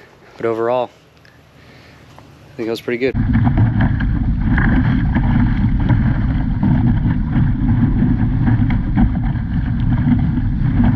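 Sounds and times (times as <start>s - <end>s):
water splashing against hull: 3.2s - 10.9s
wind buffeting microphone: 3.2s - 10.9s.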